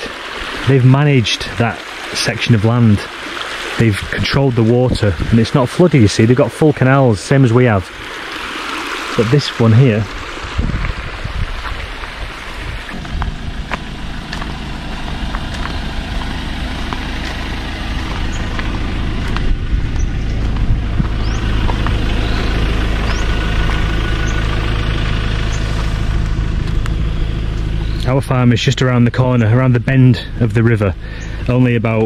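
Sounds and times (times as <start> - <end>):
motor engine running: 7.6 - 32.0
bird chirps: 18.1 - 18.8, 19.9 - 24.6, 26.8 - 28.2.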